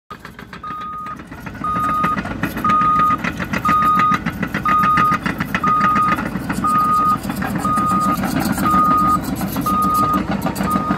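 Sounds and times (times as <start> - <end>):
diesel engine running: 0.1 - 10.9
steel tracks clattering: 0.1 - 10.9
reversing alarm beeps: 0.6 - 10.9.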